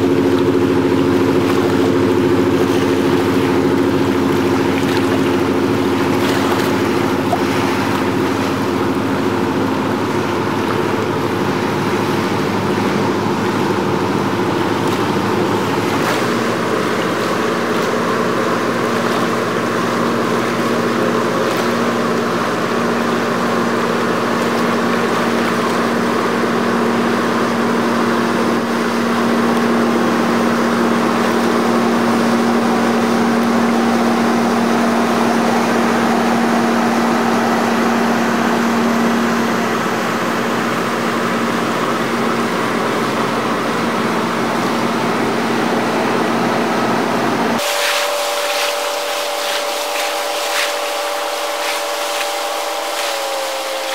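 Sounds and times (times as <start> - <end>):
rushing water: 0.0 - 53.9
ship engines droning: 0.0 - 53.9.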